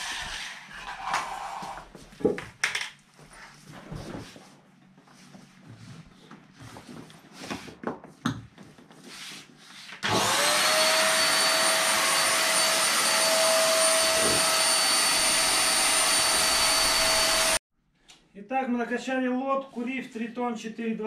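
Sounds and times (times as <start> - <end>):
electric air pump whining: 10.0 - 17.6.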